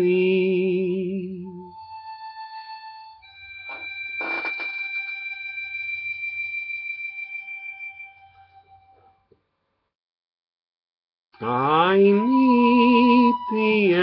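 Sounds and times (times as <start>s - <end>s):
man singing held note: 11.4s - 14.0s.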